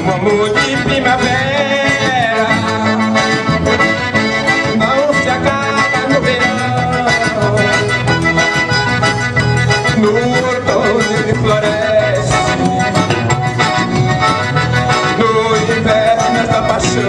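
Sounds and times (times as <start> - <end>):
electric bass: 0.0 - 17.0
piano accordion melody: 0.0 - 17.0.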